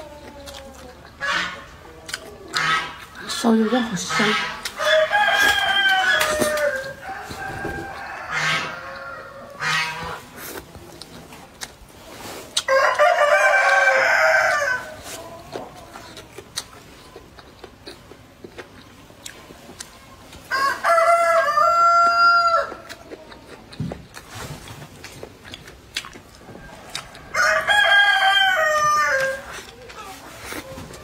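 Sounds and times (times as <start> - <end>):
rooster crowing: 4.8 - 9.8, 12.7 - 15.0, 20.5 - 22.9, 26.5 - 29.6.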